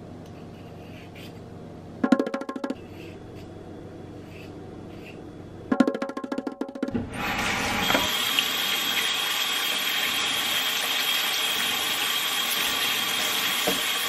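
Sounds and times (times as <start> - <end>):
tap water running into colander: 7.1 - 14.0.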